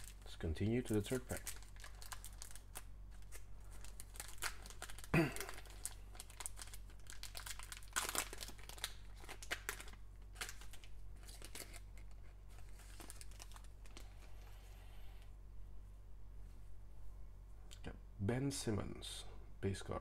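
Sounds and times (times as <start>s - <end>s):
foil pack crinkling and tearing: 0.0s - 14.1s.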